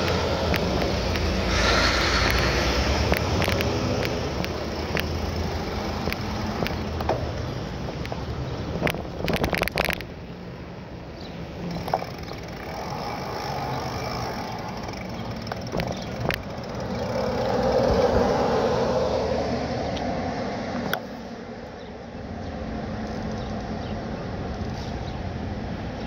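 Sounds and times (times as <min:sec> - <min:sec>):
bicycle clicks: 0:00.0 - 0:10.2, 0:11.2 - 0:18.4
bicycle rattling: 0:00.0 - 0:18.6
tyre and wind noise: 0:00.0 - 0:19.2.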